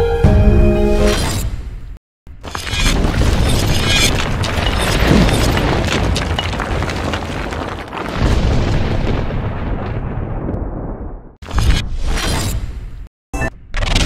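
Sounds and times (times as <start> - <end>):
crackles of flying debris: 2.4 - 11.2.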